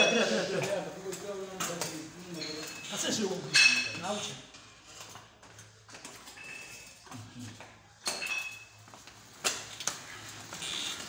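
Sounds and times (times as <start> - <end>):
metallic clinks of gym equipment: 1.2 - 4.0, 4.9 - 7.1, 8.0 - 8.9.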